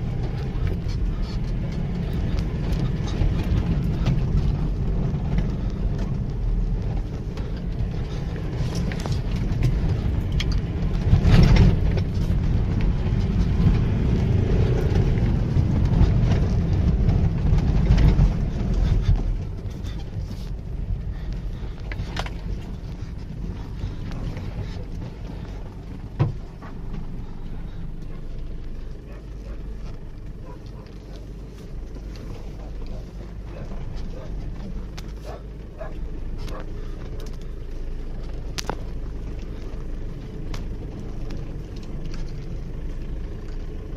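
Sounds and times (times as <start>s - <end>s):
diesel engine pulling hard: 0.0s - 43.9s
car body knocks and rattles: 22.0s - 27.2s.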